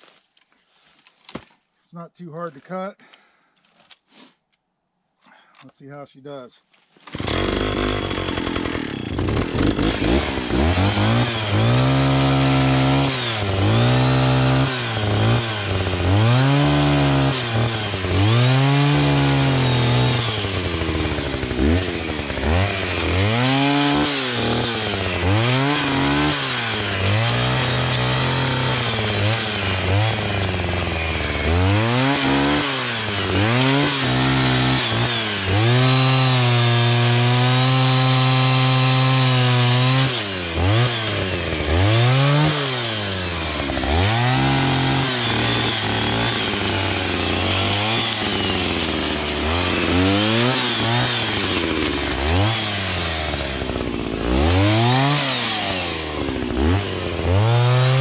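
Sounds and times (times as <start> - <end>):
chainsaw cutting wood: 7.0 - 58.0.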